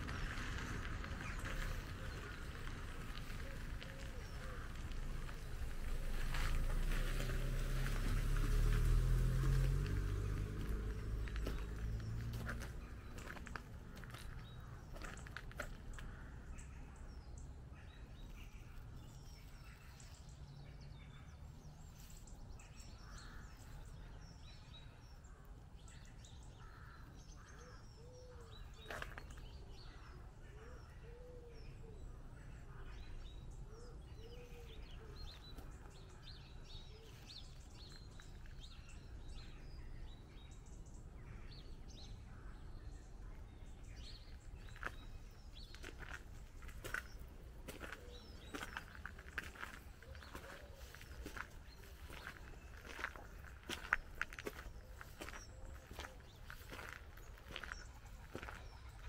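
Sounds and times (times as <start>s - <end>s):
low cooing bird call: 0.0s - 6.3s, 30.5s - 32.0s, 33.7s - 35.6s, 47.7s - 59.0s
songbirds chirping and singing: 0.0s - 59.0s.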